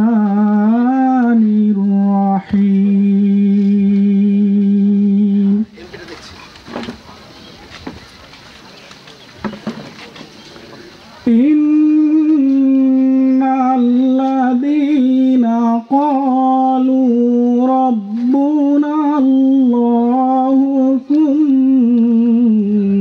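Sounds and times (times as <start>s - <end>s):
person chanting melodically: 0.0s - 5.9s, 11.1s - 23.0s.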